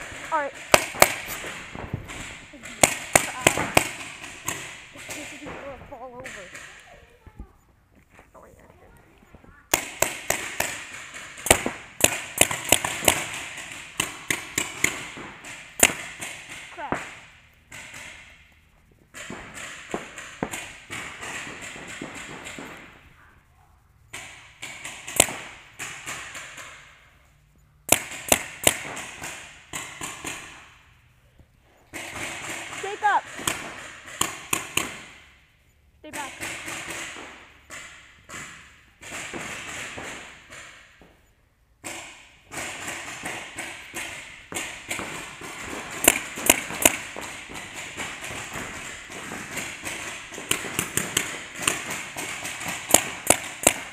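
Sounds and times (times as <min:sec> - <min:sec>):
paintball markers firing: 0:00.0 - 0:07.3, 0:09.6 - 0:23.3, 0:24.1 - 0:35.4, 0:36.1 - 0:53.9
faint pops and thuds: 0:00.0 - 0:23.1.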